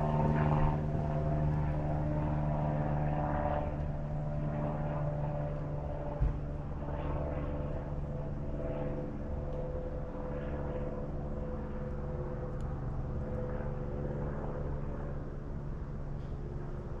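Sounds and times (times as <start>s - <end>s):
steady engine drone: 0.0s - 17.0s.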